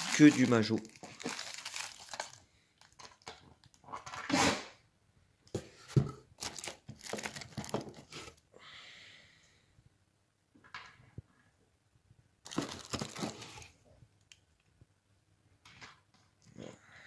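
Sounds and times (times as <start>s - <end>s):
bubble wrap crinkling: 0.0s - 3.8s, 6.4s - 8.4s, 12.4s - 13.8s.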